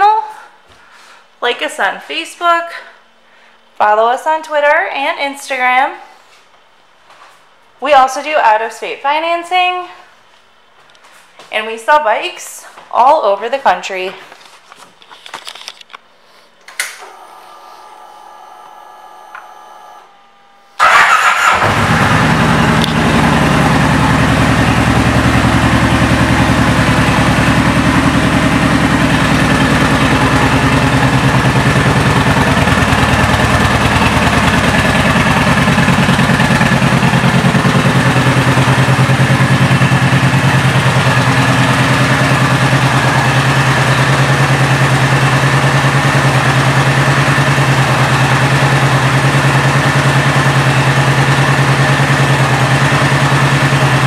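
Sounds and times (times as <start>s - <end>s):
motorcycle engine idling: 20.8s - 54.0s.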